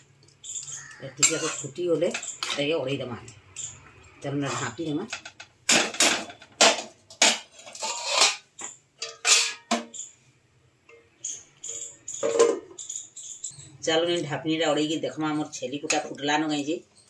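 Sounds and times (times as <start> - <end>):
ladle scraping metal pan: 1.2 - 1.7, 7.2 - 9.8
metal lid clank: 5.7 - 10.0, 12.2 - 12.7.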